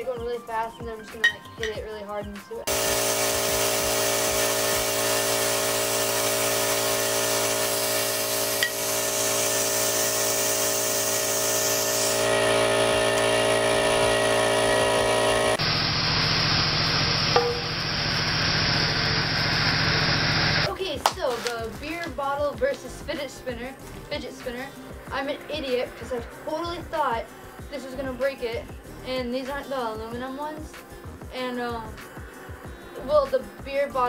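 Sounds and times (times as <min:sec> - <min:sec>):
air compressor running: 0:02.7 - 0:20.7.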